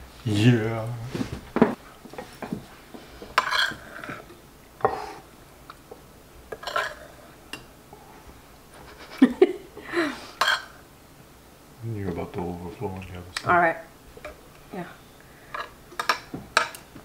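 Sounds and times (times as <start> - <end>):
metal spoon scraping ceramic bowl: 3.4 - 4.2, 6.6 - 7.1.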